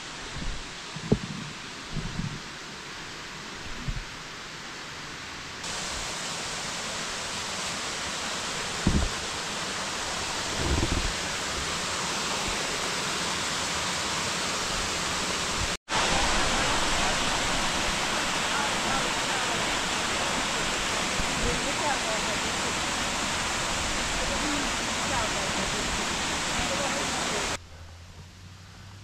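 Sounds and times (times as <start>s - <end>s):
waterfall rushing over rock: 5.6s - 27.6s
low bumps: 10.5s - 11.2s.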